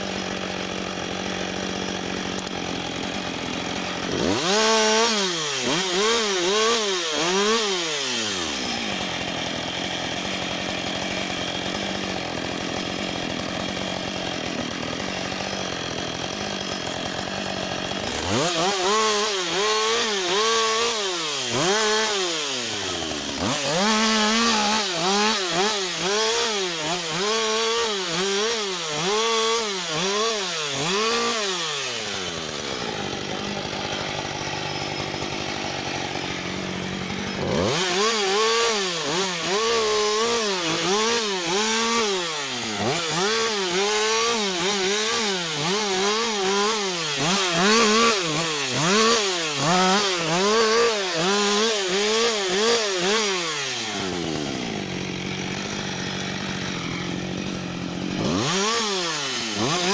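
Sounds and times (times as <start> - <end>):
chainsaw revving and idling: 0.0 - 59.9.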